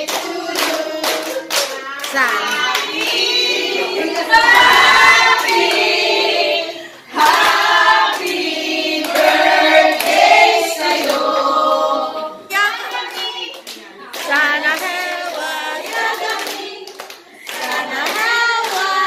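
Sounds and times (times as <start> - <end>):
hands clapping: 0.0 - 4.0, 9.0 - 10.2, 13.0 - 19.0
women singing in unison: 0.0 - 13.5, 14.2 - 19.0.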